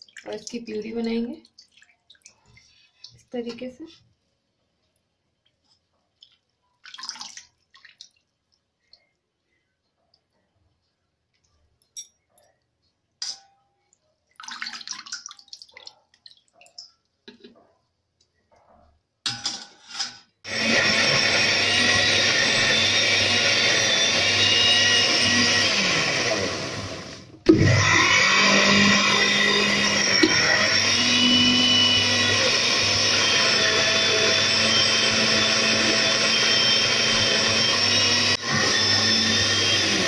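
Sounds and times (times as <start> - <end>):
water splashes and spoon clinks: 11.8 - 17.5
electric blender running: 20.5 - 40.0.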